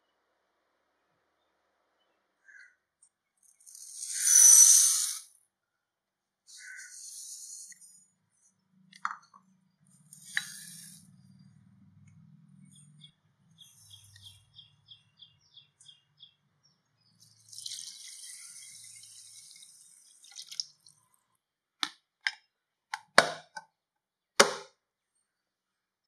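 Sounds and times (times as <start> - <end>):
water poured into glass bowl: 17.2 - 21.2
plastic lid clacking: 21.8 - 23.7, 24.4 - 24.7.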